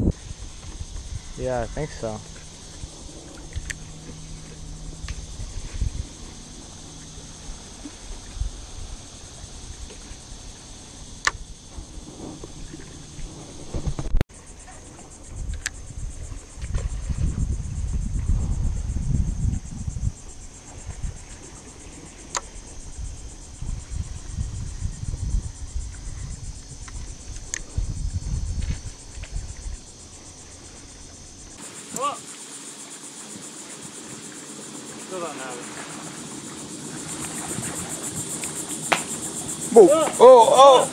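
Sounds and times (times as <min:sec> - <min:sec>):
wind buffeting microphone: 0:00.0 - 0:14.2, 0:14.8 - 0:31.6, 0:33.2 - 0:40.9
insects buzzing: 0:00.0 - 0:40.9
faint sharp ticks: 0:15.5 - 0:15.8, 0:22.3 - 0:22.5.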